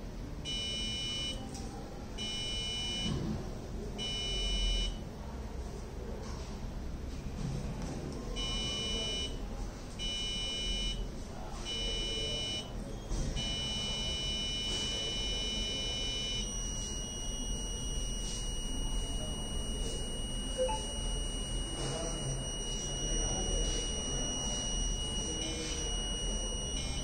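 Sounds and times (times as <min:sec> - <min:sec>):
electronic buzzer tone: 0:00.4 - 0:01.4, 0:02.2 - 0:03.4, 0:04.0 - 0:05.0, 0:08.4 - 0:09.4, 0:10.0 - 0:27.0.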